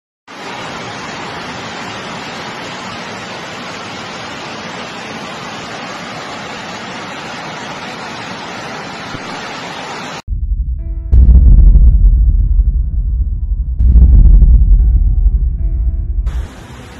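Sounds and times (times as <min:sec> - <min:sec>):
hail and rain roaring: 0:00.3 - 0:10.2.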